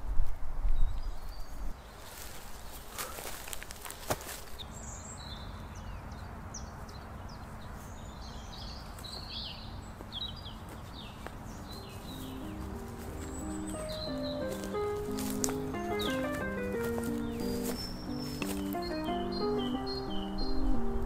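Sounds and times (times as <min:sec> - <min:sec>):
birds chirping and singing: 0:04.5 - 0:21.0.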